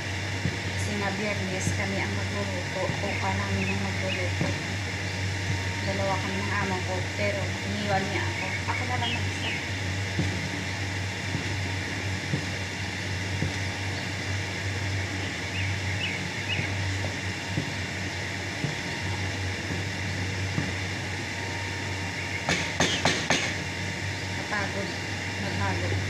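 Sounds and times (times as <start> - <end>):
steady low hum: 0.0 - 26.0
paddle knocking on pot: 22.5 - 23.6.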